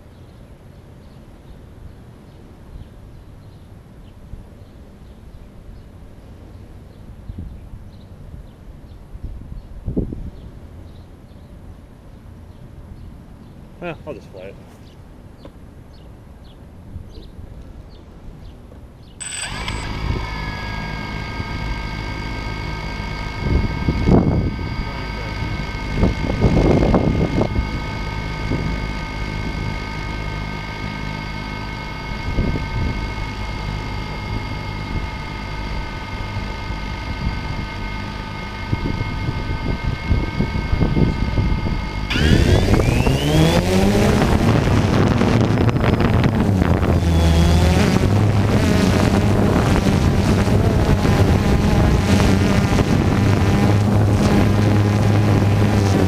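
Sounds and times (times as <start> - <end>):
drone motors whining: 19.2 - 56.0.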